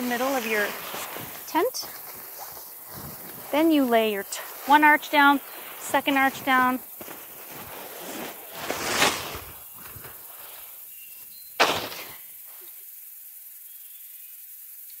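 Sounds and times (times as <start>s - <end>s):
tent fabric rustling: 0.0s - 12.6s
sharp slap: 11.6s - 12.2s.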